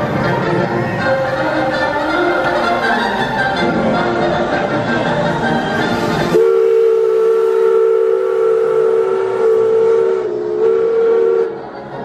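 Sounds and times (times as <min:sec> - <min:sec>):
steam locomotive whistle: 0:05.4 - 0:11.8.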